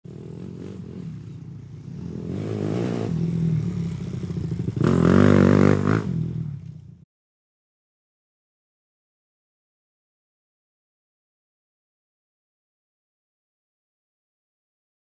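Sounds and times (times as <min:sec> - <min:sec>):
motorcycle engine revving: 0:00.1 - 0:07.0.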